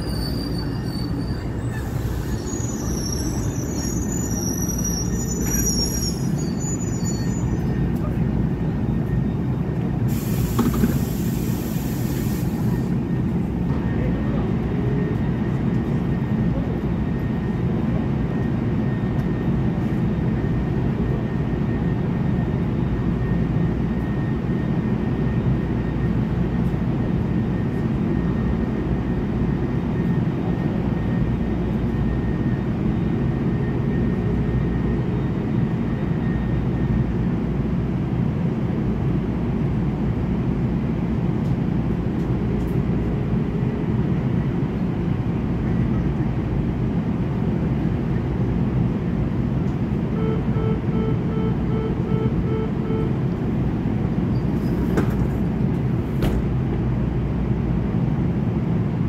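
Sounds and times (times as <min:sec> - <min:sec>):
train low rumble: 0:00.0 - 0:59.0
air hiss: 0:10.1 - 0:12.7.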